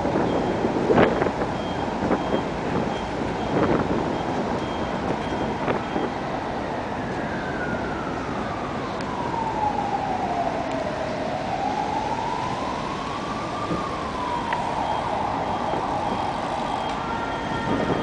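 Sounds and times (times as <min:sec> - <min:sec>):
emergency vehicle siren wailing: 0:00.0 - 0:18.0
street traffic noise: 0:00.0 - 0:18.0.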